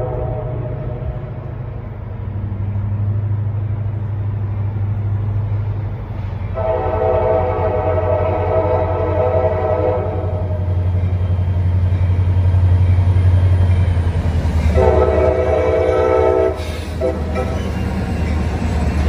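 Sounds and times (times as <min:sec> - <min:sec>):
locomotive air horn blasts: 0:00.0 - 0:01.1, 0:06.5 - 0:10.7, 0:14.7 - 0:17.7
diesel engines droning: 0:00.0 - 0:19.0.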